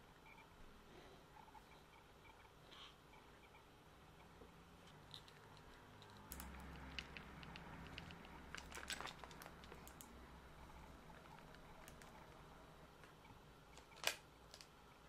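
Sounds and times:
plastic bag crinkling: 0:08.0 - 0:10.0.

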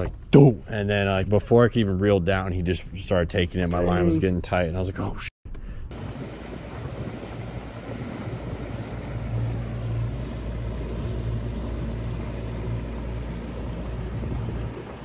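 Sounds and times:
boat engine hum: 0:05.9 - 0:15.0
wind and water rushing: 0:05.9 - 0:15.0.

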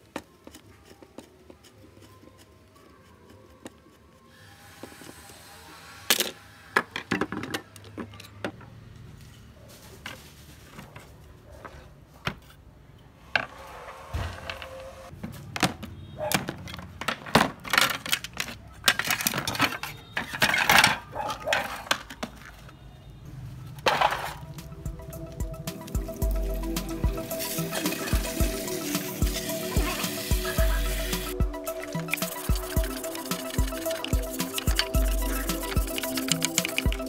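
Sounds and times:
screwdriver and metal parts clinking: 0:16.5 - 0:22.2, 0:31.7 - 0:37.0.

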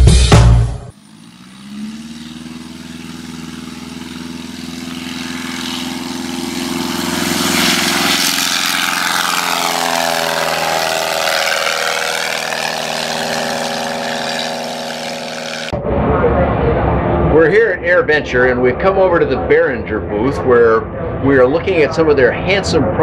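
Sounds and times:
light aircraft engine and propeller: 0:00.7 - 0:23.0.

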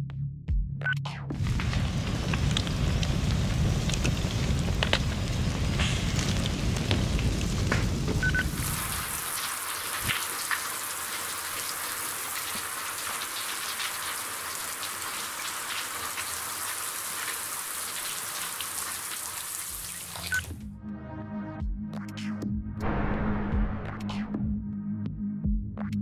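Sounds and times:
low rumble: 0:01.4 - 0:08.8, 0:22.8 - 0:24.7
raindrop ticks: 0:01.4 - 0:10.8
steady hiss of rain: 0:01.4 - 0:20.5.

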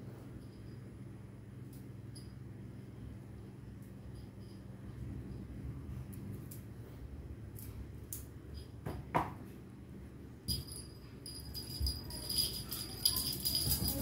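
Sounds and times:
small bell jingling: 0:10.5 - 0:14.0.

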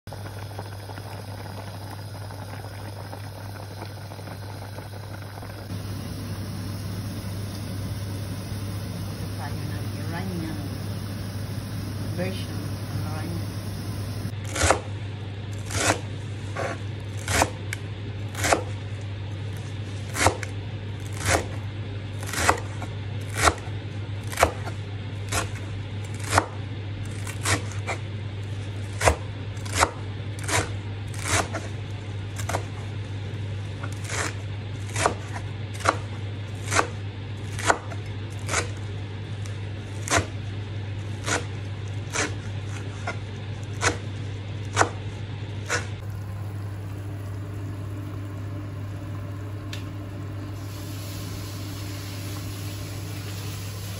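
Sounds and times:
steady low hum: 0:00.1 - 0:14.4, 0:45.9 - 0:53.9.

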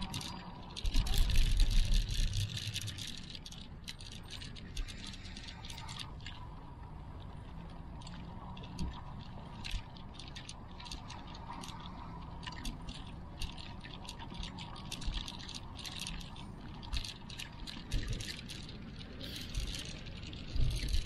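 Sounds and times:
camera handling clicks and rattles: 0:00.0 - 0:06.4, 0:12.4 - 0:21.0.

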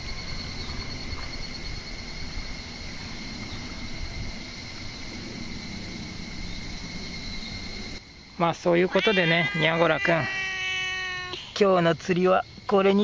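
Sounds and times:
wind rumble on microphone: 0:00.0 - 0:08.0
high-pitched insect trill: 0:00.0 - 0:13.0.

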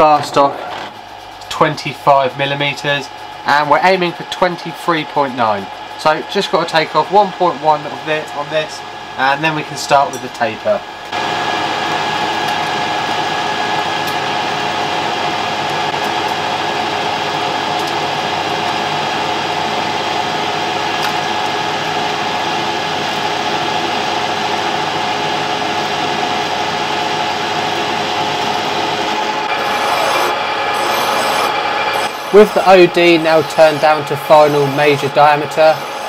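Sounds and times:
lathe whine: 0:00.0 - 0:36.0
hiss of metal cutting: 0:29.6 - 0:36.0.

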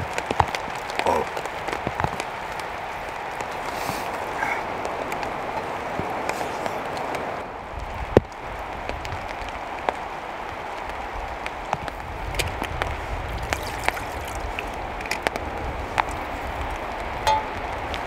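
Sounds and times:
rain on a tarp: 0:00.0 - 0:18.0
sharp raindrop hits: 0:00.0 - 0:18.0.

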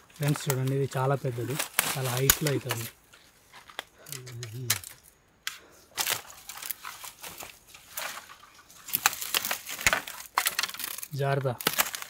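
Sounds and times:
bamboo twigs crackling and snapping: 0:00.0 - 0:12.0.

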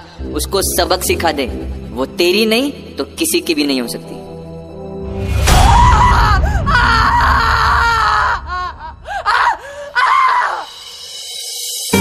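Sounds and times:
girls screaming and wailing: 0:05.6 - 0:10.8.

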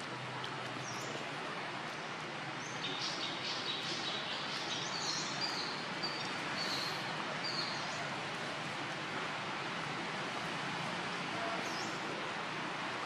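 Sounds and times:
steady background hiss: 0:00.0 - 0:13.0
small birds chirping: 0:00.7 - 0:08.1.

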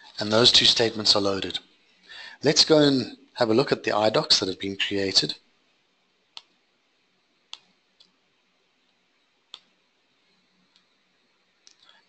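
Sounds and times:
computer mouse clicks: 0:06.4 - 0:06.6, 0:07.5 - 0:08.2, 0:09.5 - 0:09.7.

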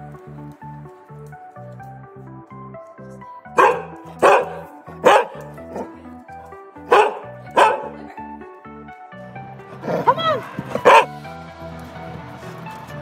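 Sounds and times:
background music: 0:00.0 - 0:13.0
dog barking: 0:03.5 - 0:06.0, 0:06.8 - 0:08.0, 0:09.9 - 0:11.1.

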